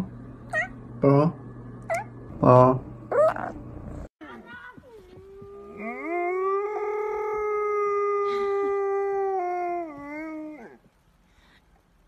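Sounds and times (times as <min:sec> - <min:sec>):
dog howling: 0:05.2 - 0:10.8.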